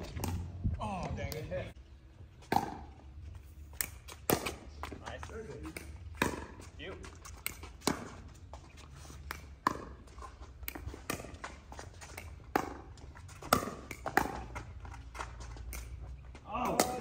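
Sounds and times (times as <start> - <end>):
paddles hitting plastic ball: 9.2 - 16.0.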